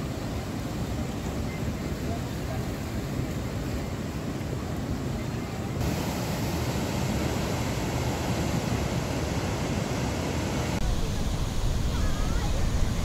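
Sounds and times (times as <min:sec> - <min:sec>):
water rushing through spillway: 0:00.0 - 0:13.0
wind buffeting microphone: 0:10.4 - 0:13.0.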